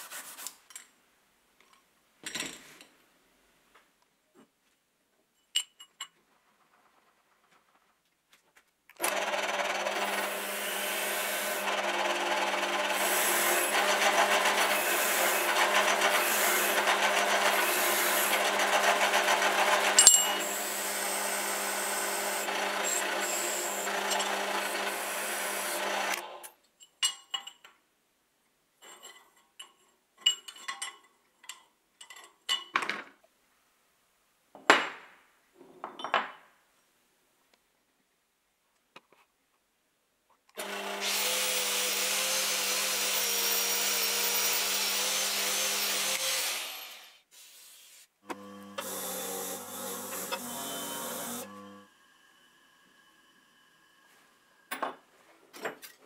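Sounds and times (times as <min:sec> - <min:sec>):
drill press motor hum: 0:09.0 - 0:26.4, 0:40.6 - 0:47.1, 0:48.3 - 0:54.6
wire brush scrubbing metal: 0:12.4 - 0:20.0.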